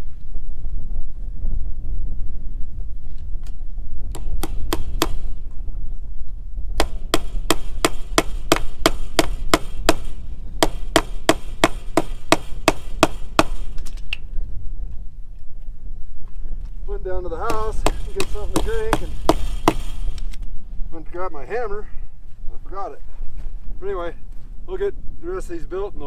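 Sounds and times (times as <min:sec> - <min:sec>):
wind rumble on microphone: 0:00.0 - 0:26.0
hammer striking staples into wood: 0:04.1 - 0:05.2, 0:06.8 - 0:13.8, 0:17.5 - 0:20.0.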